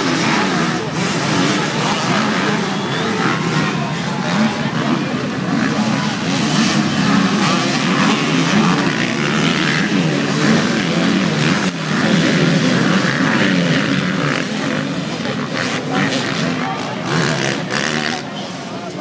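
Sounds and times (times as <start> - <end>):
motocross bike engines revving: 0.0 - 19.0.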